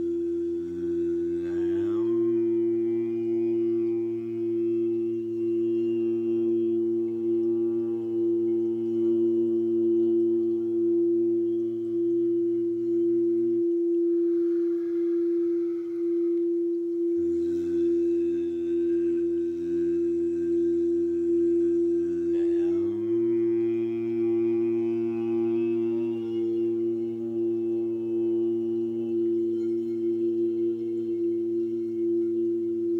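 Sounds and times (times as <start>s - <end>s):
steady high tone: 0.0s - 32.9s
voices chanting sung drones: 0.6s - 10.8s, 21.1s - 31.3s.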